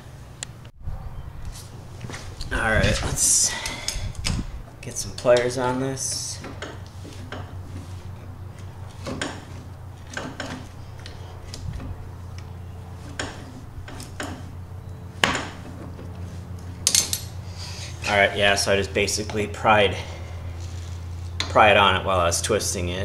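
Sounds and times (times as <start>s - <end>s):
steady low hum: 0.0s - 23.0s
tools clinking and scraping on metal: 4.9s - 17.4s.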